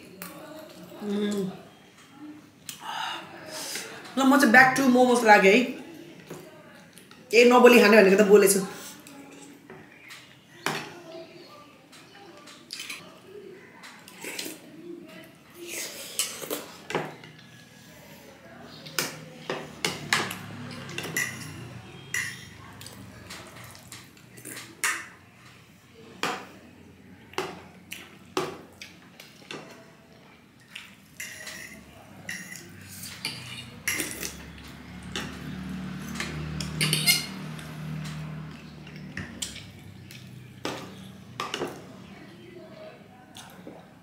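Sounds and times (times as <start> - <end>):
cutlery clinking on ceramic plate: 19.0 - 22.6, 31.2 - 34.5, 36.0 - 38.2.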